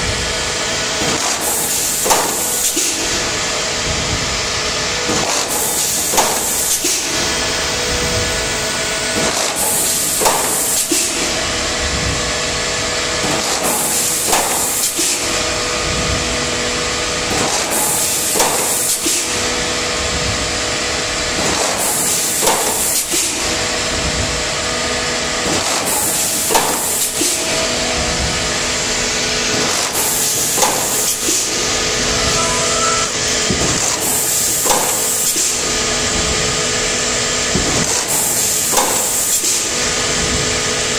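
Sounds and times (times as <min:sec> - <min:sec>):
machine hum: 0:27.4 - 0:34.5.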